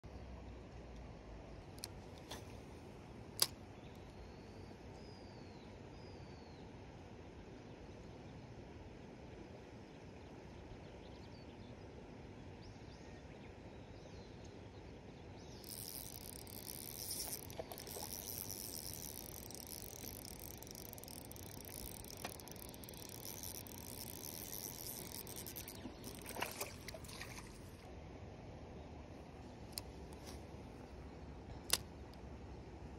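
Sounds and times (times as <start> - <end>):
sharp click: 3.4 - 4.1
fishing reel whirring: 15.6 - 27.7.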